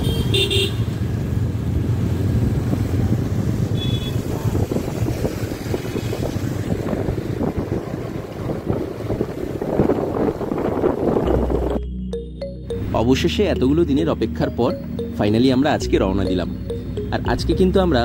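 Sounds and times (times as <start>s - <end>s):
motorcycle engine drone: 0.8s - 12.4s
wind buffeting microphone: 2.5s - 11.6s.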